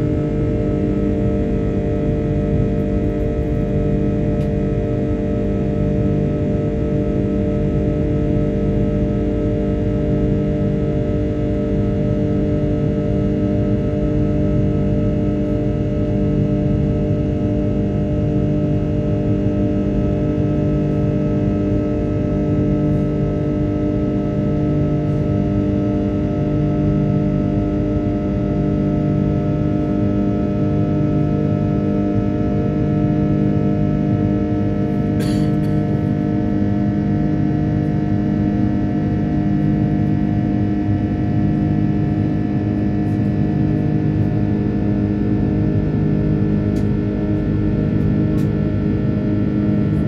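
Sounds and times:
jet engines droning in cabin: 0.0s - 50.0s.

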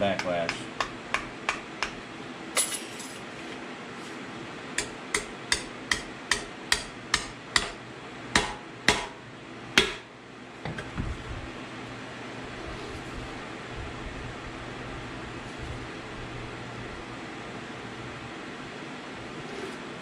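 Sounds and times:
hammer tapping metal shim: 0.1s - 2.0s, 4.8s - 7.8s, 8.4s - 9.2s.

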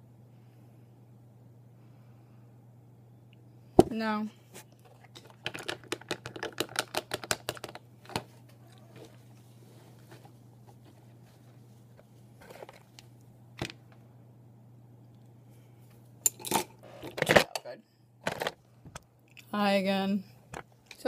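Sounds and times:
steady low hum: 0.0s - 6.4s, 7.5s - 21.0s
small hard clicks and taps: 5.2s - 8.2s.

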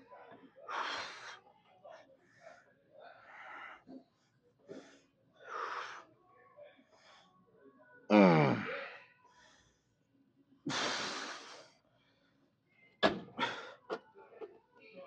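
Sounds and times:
man straining grunt: 8.1s - 8.7s.

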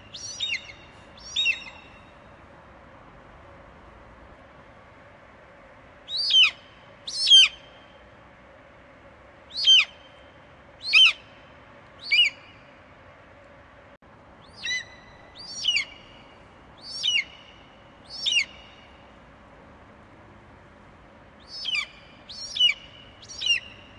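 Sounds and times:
faint background hum: 0.0s - 23.9s
eagle whistled chirps: 0.1s - 1.9s, 12.0s - 12.5s, 14.4s - 16.0s, 16.8s - 17.4s, 18.1s - 18.6s, 21.4s - 23.8s.

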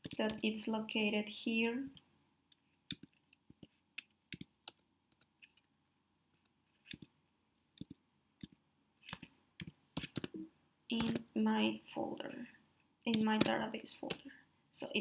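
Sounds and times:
computer keyboard tapping: 2.9s - 5.7s, 7.8s - 11.3s, 13.1s - 14.2s.

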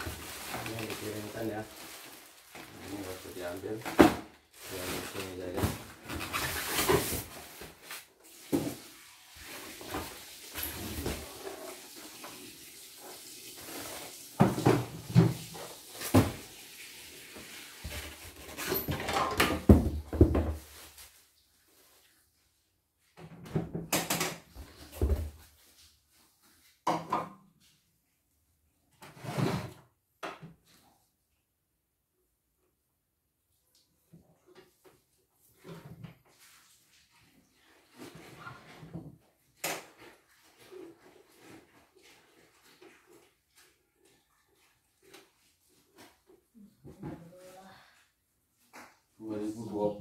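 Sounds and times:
plastic and styrofoam rustling: 0.0s - 22.1s
knocks and thumps: 18.9s - 20.7s.

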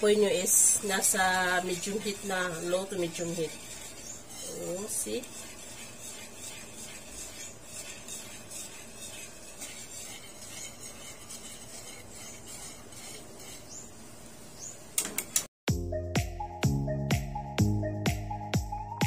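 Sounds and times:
whisk scraping metal pan: 0.0s - 14.4s
music: 15.7s - 19.0s.

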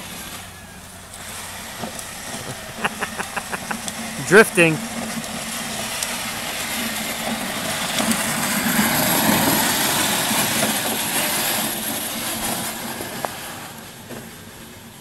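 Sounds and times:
plastic wheels rolling on asphalt: 4.9s - 15.0s.

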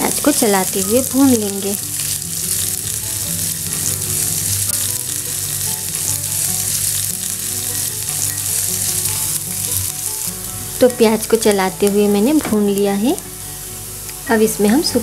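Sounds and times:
onion sizzling in hot oil: 0.0s - 15.0s
spatula scraping a frying pan: 1.9s - 10.2s.

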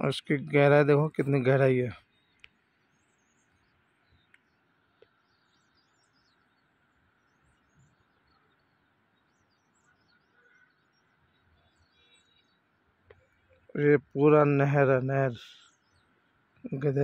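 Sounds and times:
faint bird chirps: 0.0s - 17.0s
small clicks: 2.4s - 2.6s.

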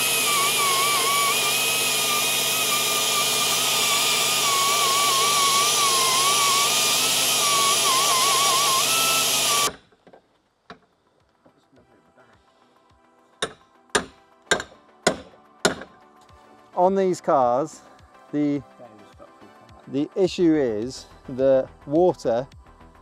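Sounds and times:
rotary tool grinding metal: 0.0s - 9.8s.

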